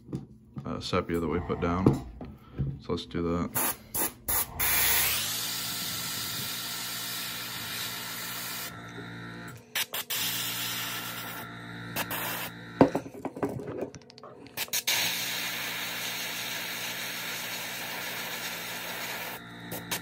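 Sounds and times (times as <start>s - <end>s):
steady low hum: 0.1s - 14.6s
airbrush spraying air hiss: 3.6s - 8.7s, 9.8s - 11.4s, 12.0s - 12.5s, 14.6s - 20.0s.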